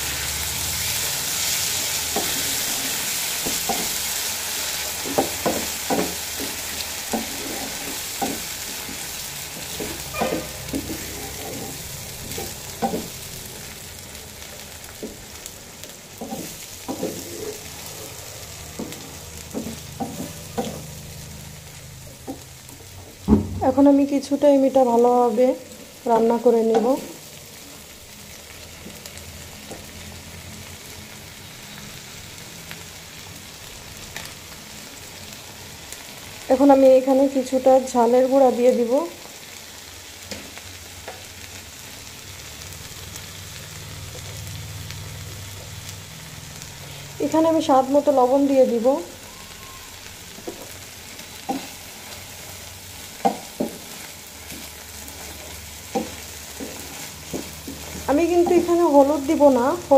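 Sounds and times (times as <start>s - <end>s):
paste sizzling in a pan: 0.0s - 59.9s
wooden spatula tapping: 18.8s - 20.8s, 55.9s - 58.8s.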